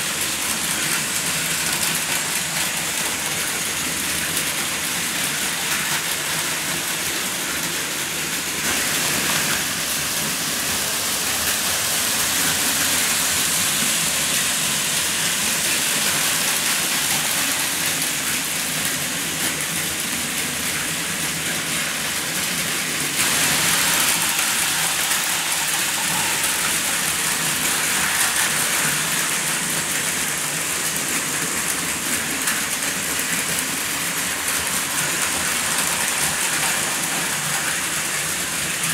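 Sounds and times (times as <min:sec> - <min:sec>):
toy trains rattling on track: 0:00.0 - 0:38.9.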